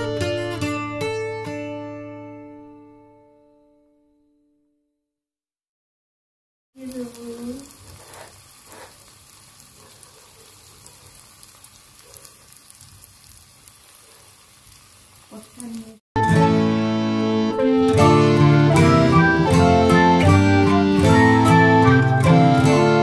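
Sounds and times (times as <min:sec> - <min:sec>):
curry sizzling in oil: 0:06.8 - 0:16.0.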